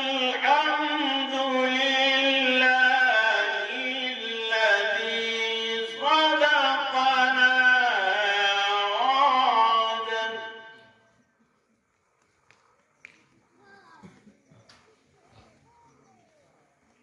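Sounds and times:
man chanting into a microphone: 0:00.0 - 0:11.0.

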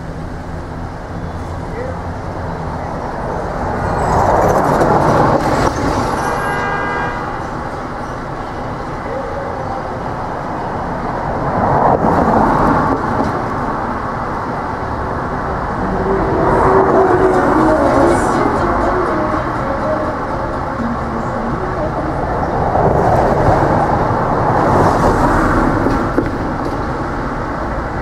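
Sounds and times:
city street traffic rumble: 0:00.0 - 0:28.0
vehicles passing: 0:00.0 - 0:28.0.

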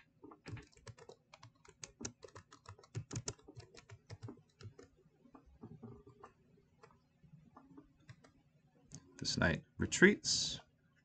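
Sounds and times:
typing on computer keyboard: 0:00.2 - 0:07.0, 0:08.0 - 0:08.4.

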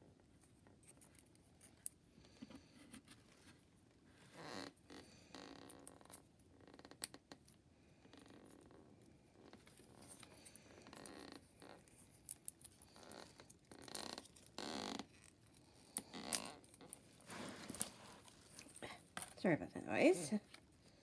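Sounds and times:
card rustling and scraping: 0:16.1 - 0:18.8.

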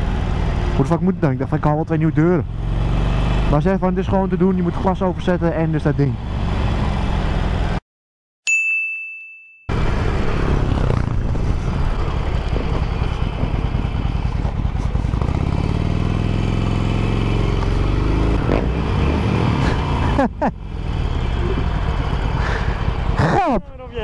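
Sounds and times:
motorcycle engine running: 0:09.7 - 0:24.0.

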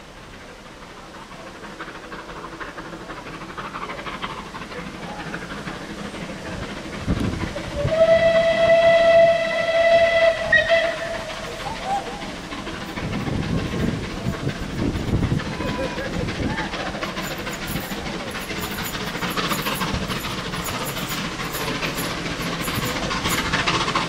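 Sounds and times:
steam locomotive approaching: 0:00.0 - 0:24.0
steam whistle blast: 0:07.7 - 0:11.3.

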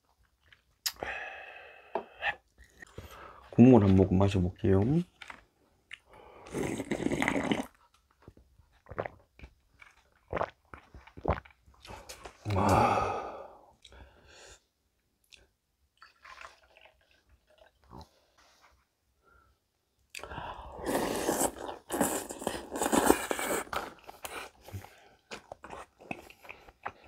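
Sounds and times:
mouth clicks: 0:00.8 - 0:01.0
person slurping broth: 0:06.3 - 0:07.8, 0:11.2 - 0:13.6, 0:20.2 - 0:25.0
chewing: 0:20.9 - 0:27.0.

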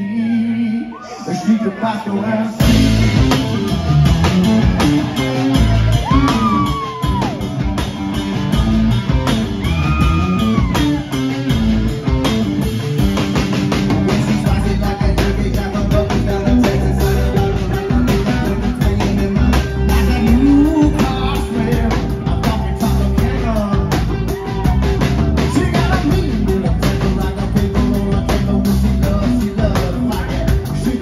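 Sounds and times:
bending guitar notes: 0:02.6 - 0:26.8
rock band playing: 0:02.6 - 0:31.0.

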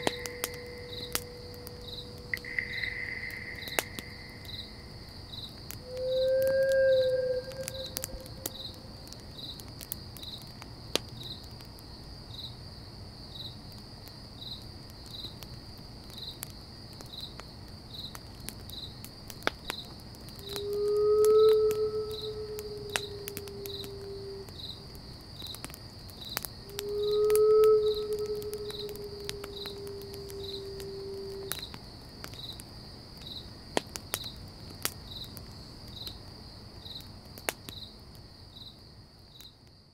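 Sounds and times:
sharp clicks: 0:00.0 - 0:04.6
crickets chirping: 0:00.0 - 0:39.9.

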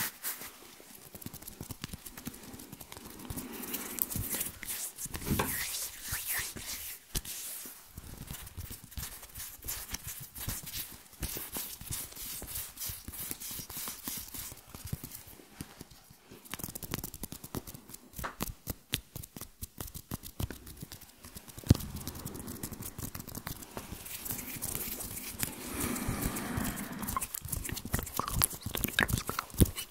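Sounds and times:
hand clicks and rustles: 0:08.2 - 0:26.0.

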